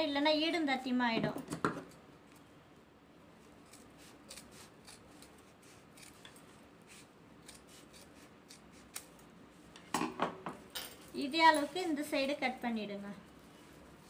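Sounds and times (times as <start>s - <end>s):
shears snipping fabric: 3.6s - 9.3s.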